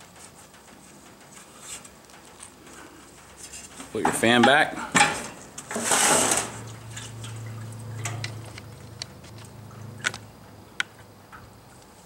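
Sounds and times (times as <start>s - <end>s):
metal scraping: 0.1s - 8.6s.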